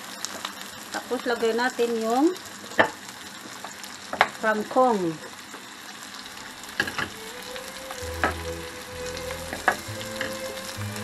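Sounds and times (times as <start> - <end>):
vegetables sizzling in oil: 0.0 - 11.0
wooden spoon knocking pan: 9.4 - 10.4.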